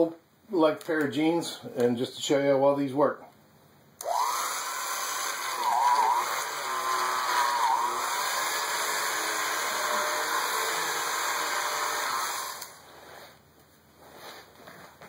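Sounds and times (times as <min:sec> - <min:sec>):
electric shear motor whine: 0:04.0 - 0:12.8
fabric rustling: 0:12.8 - 0:15.0.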